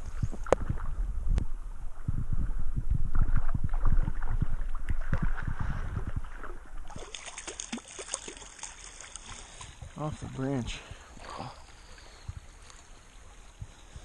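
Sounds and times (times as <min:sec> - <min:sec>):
water splashing and sloshing: 0:00.0 - 0:14.0
fish thrashing at the surface: 0:03.1 - 0:09.9.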